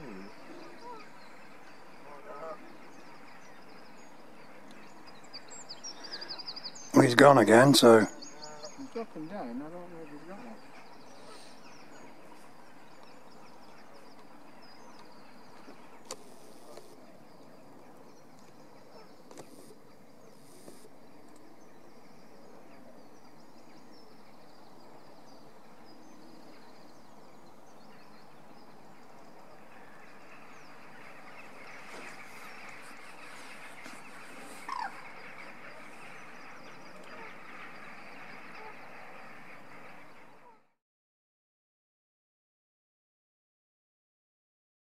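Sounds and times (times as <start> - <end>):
distant birds calling: 0.0 - 40.7
sharp bird call: 31.1 - 40.6.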